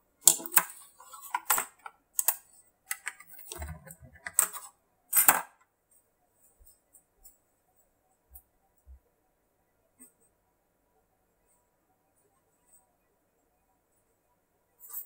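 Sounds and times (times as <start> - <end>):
plastic clicks and clatters: 0.2 - 5.6.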